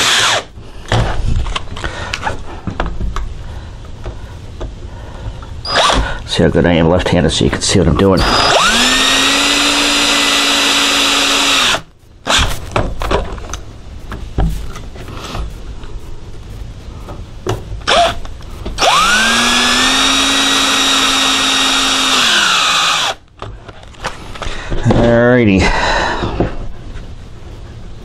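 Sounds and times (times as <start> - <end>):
cordless drill motor whine: 0.0 - 0.5, 5.6 - 6.1, 8.2 - 12.5, 17.9 - 18.2, 18.8 - 23.2.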